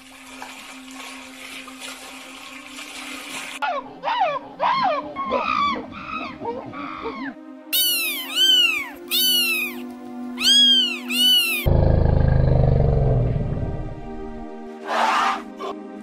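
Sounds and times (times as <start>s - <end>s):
monkey calls: 3.7s - 9.8s, 10.4s - 11.7s
kitten meowing: 7.8s - 9.8s, 10.4s - 11.7s
elephant rumble: 11.7s - 14.6s.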